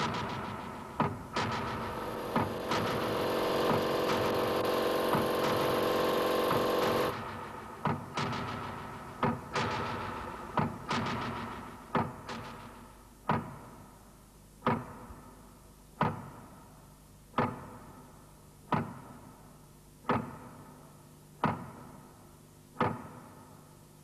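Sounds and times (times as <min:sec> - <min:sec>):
sharp ringing percussive hit: 0:01.4 - 0:11.8.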